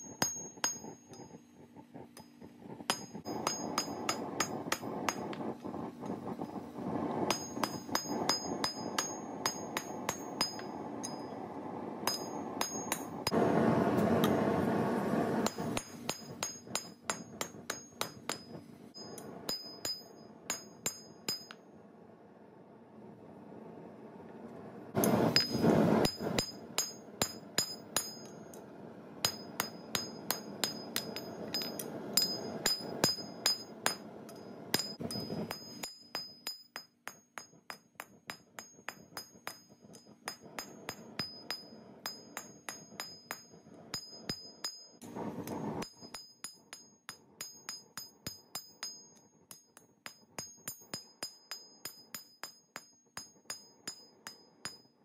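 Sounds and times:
hammer ringing on anvil: 0.1s - 1.3s, 2.9s - 5.2s, 7.3s - 11.4s, 12.0s - 13.4s, 15.4s - 21.6s, 25.4s - 28.4s, 29.2s - 45.0s, 45.8s - 54.8s.

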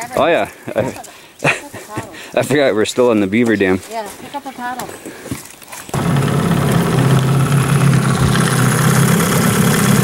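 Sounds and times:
outboard motor running: 5.9s - 10.0s.

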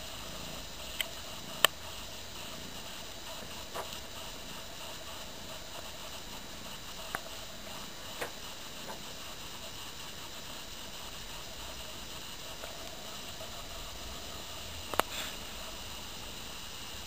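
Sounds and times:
steady hiss: 0.0s - 17.0s
faint clicks: 0.8s - 2.6s, 3.3s - 10.2s, 14.8s - 15.4s.

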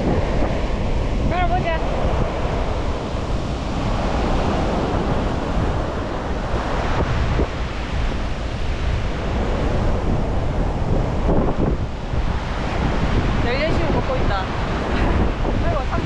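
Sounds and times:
surf washing onto beach: 0.0s - 16.0s
wind buffeting microphone: 0.0s - 16.0s.

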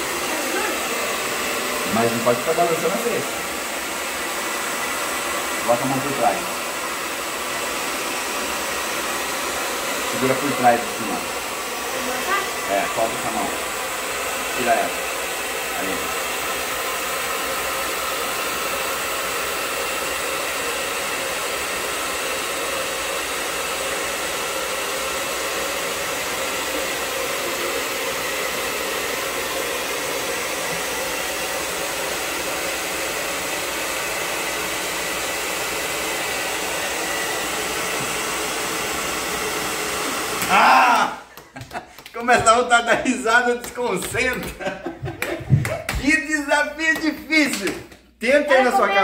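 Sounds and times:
hair dryer blowing: 0.0s - 49.0s
man laughing: 40.4s - 43.4s, 44.1s - 46.3s.

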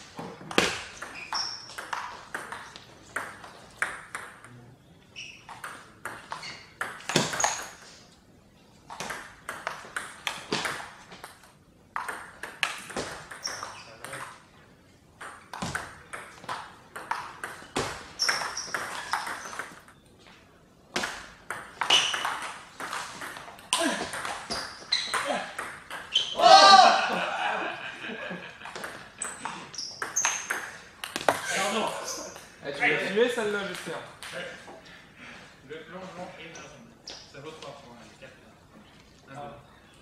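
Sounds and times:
table tennis ball clicking: 15.2s - 20.0s, 28.8s - 31.4s.

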